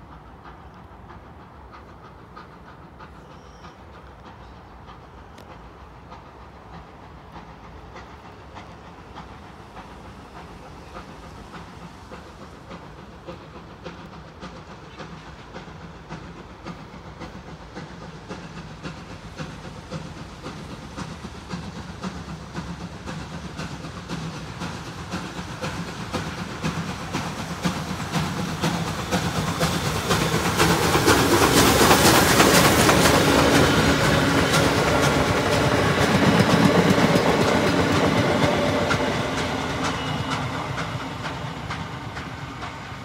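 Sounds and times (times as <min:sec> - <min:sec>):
steam hiss: 0:00.0 - 0:43.0
steam locomotive exhaust chuffs: 0:00.0 - 0:43.0.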